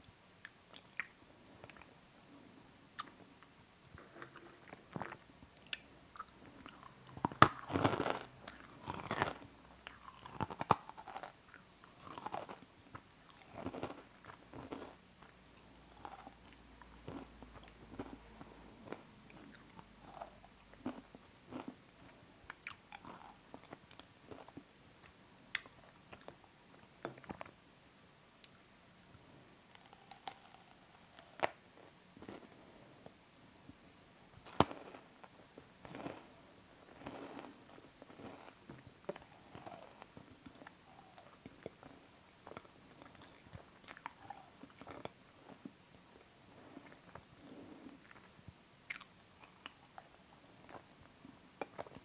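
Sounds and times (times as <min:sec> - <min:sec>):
person crunching and chewing: 0:04.0 - 0:15.0, 0:15.9 - 0:18.2, 0:18.8 - 0:21.8, 0:29.7 - 0:31.6, 0:35.8 - 0:45.7.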